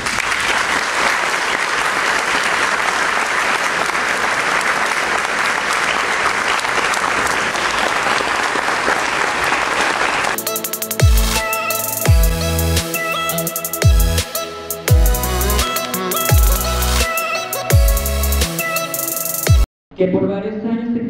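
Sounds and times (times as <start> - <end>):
large audience clapping: 0.0 - 12.4, 15.0 - 17.1.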